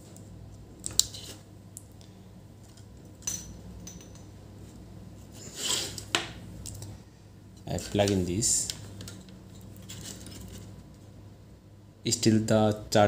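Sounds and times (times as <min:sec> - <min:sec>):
steady low hum: 0:00.0 - 0:13.0
scraping rustle: 0:08.8 - 0:10.9.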